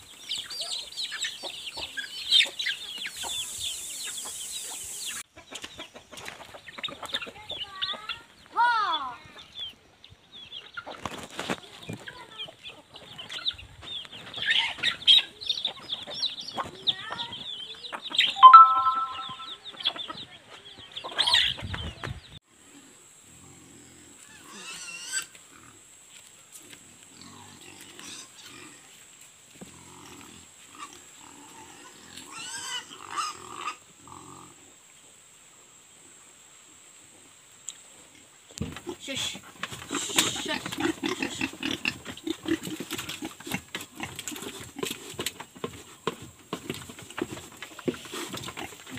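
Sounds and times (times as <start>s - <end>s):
chicks peeping: 0.0s - 8.5s, 9.3s - 22.4s
hens clucking: 0.4s - 8.4s, 38.7s - 48.9s.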